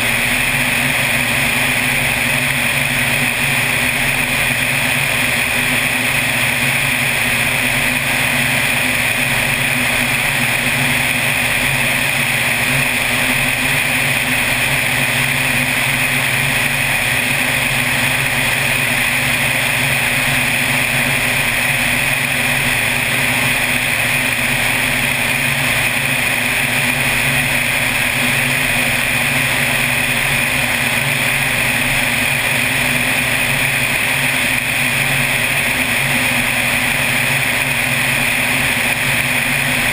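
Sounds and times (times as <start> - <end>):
plane engine and propeller droning: 0.0 - 39.9.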